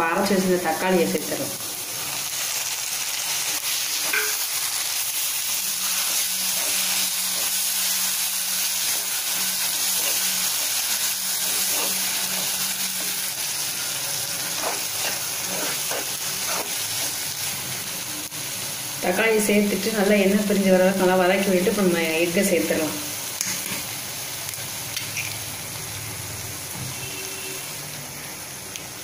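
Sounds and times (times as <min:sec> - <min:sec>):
food sizzling in hot oil: 0:00.0 - 0:29.0
spatula stirring: 0:03.6 - 0:17.7.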